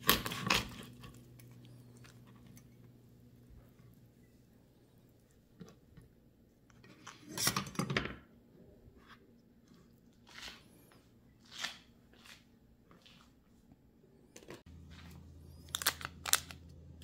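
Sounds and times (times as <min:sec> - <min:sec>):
lobster shells crackling on cutting board: 0:15.6 - 0:16.6.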